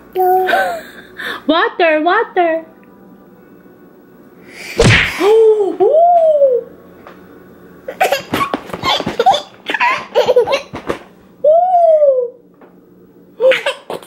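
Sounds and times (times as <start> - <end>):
toddler laughing: 7.9 - 10.7, 13.4 - 14.0.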